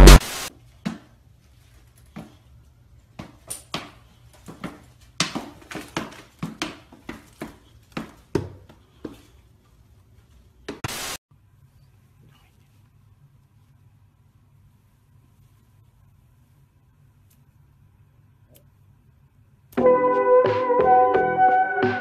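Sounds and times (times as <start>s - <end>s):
booted dog paws tapping on floor: 3.2s - 9.3s.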